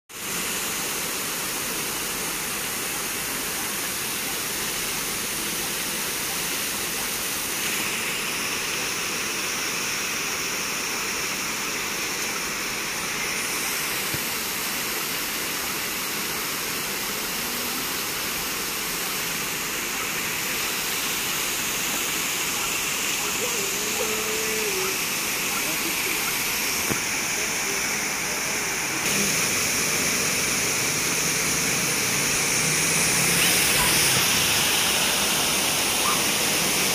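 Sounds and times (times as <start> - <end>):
waterfall rushing into pool: 0.1 - 36.9.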